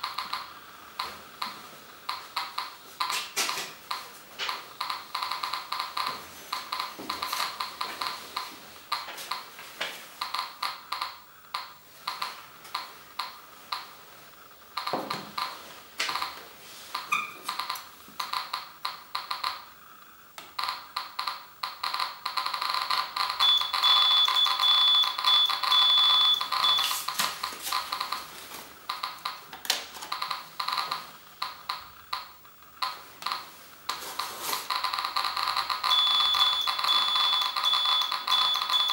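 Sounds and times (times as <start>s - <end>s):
geiger counter clicking: 0.0s - 38.9s
high steady tone: 23.3s - 28.1s, 34.7s - 38.9s.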